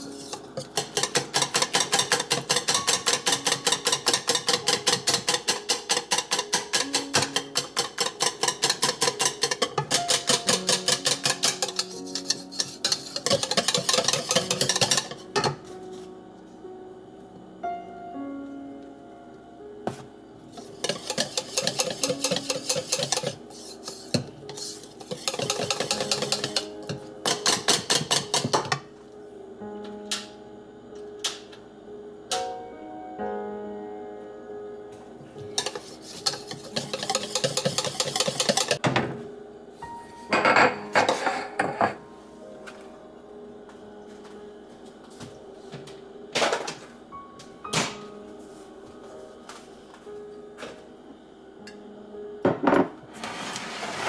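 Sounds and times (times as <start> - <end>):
soft background music: 0.0 - 54.0
wire whisk beating in ceramic bowl: 0.2 - 15.5, 20.6 - 28.8, 35.5 - 38.8
kitchenware clattering on countertop: 0.6 - 15.6, 20.8 - 23.4, 24.1 - 28.8, 35.5 - 39.0, 40.3 - 42.0.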